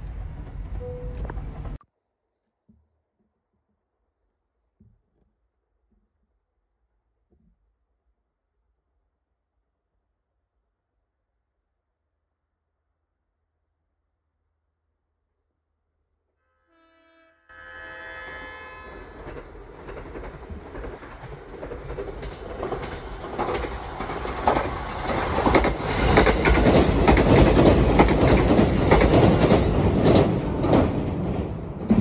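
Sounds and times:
train rumble passing: 0.0 - 1.8, 18.6 - 32.0
train horn: 16.4 - 19.6.

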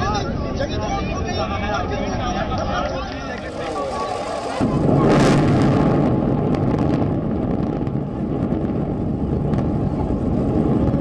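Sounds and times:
deep rumble of towers collapsing: 3.6 - 11.0.

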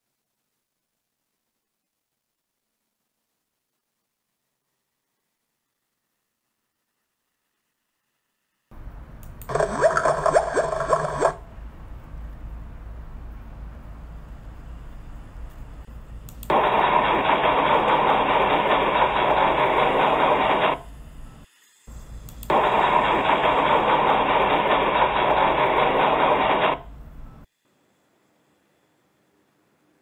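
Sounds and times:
low hum: 8.7 - 27.5
hiss-like noise: 12.0 - 25.2.

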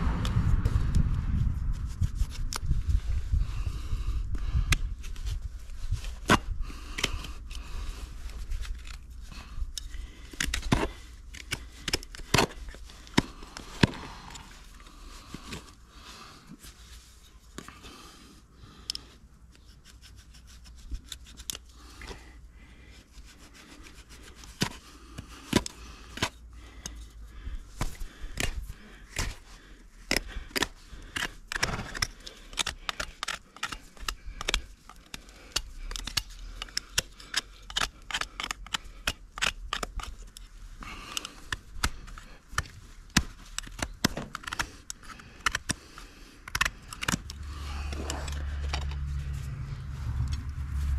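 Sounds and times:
knife scraping hoof: 19.5 - 22.3, 27.8 - 50.9.

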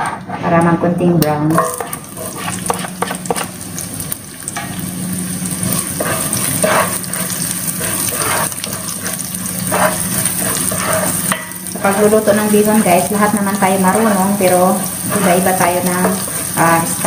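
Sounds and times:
spatula scraping pan: 1.5 - 3.6, 5.5 - 17.0
onion sizzling in hot oil: 1.6 - 17.0.

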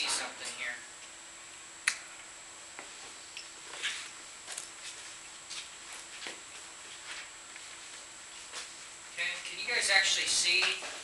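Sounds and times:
sharp click: 1.8 - 2.0.

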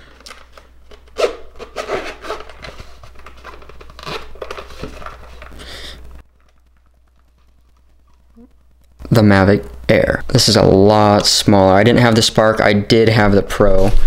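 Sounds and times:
packaging rustling and crinkling: 0.0 - 8.4.

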